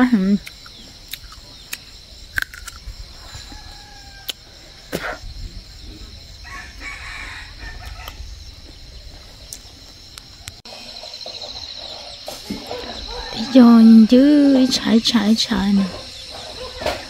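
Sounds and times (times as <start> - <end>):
insects droning: 0.0 - 17.0
rooster crowing: 3.3 - 5.0, 6.4 - 8.3, 12.6 - 15.2.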